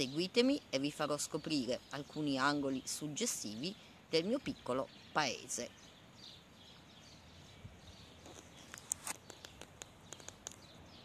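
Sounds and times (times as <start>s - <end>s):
faint outdoor background hiss: 0.0s - 11.0s.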